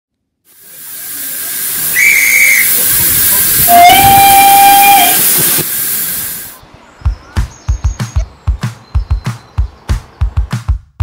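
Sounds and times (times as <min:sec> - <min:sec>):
steam locomotive hissing: 0:00.5 - 0:06.6
short high-pitched whistle: 0:01.9 - 0:02.8, 0:03.7 - 0:05.4
long low whistle: 0:03.7 - 0:05.4.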